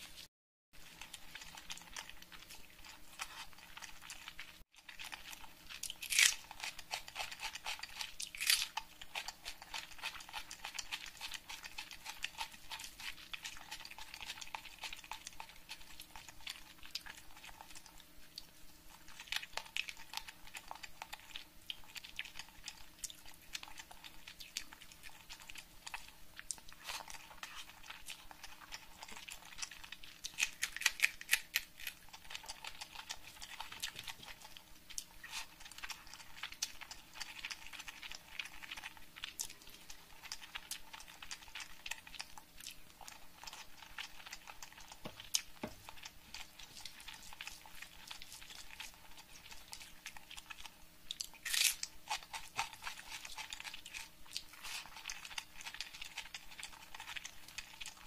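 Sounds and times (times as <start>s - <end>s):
chewing food: 0.0s - 58.0s
crunchy bites: 4.9s - 15.0s, 26.8s - 34.4s, 51.1s - 55.2s.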